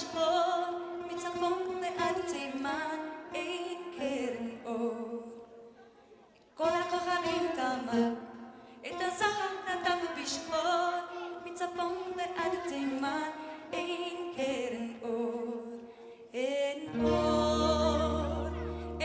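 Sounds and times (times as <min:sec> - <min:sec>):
woman singing with vibrato: 0:00.0 - 0:05.9, 0:06.6 - 0:19.0
live band playing: 0:16.9 - 0:19.0.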